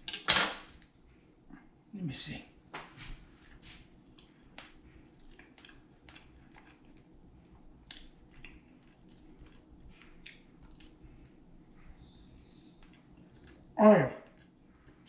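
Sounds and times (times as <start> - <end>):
person chewing crispy food: 4.0 - 11.6, 12.7 - 15.0.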